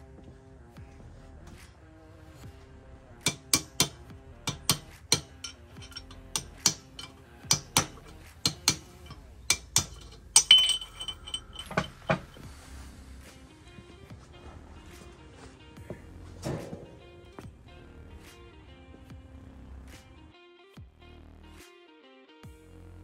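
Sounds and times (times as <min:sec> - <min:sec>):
quiet background music: 0:00.0 - 0:23.0
metal tools clinking on steel: 0:03.3 - 0:12.5.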